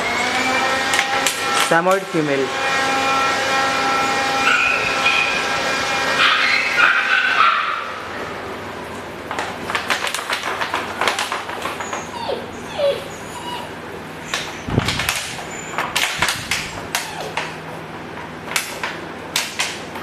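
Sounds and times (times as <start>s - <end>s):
puppy whimpering and whining: 11.6s - 17.6s.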